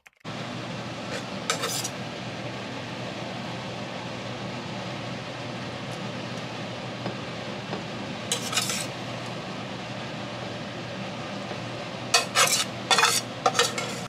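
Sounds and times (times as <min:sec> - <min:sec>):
steady background hum: 0:00.1 - 0:14.0
metal fork scraping ceramic plate: 0:01.1 - 0:02.0, 0:08.3 - 0:09.0, 0:12.2 - 0:14.0.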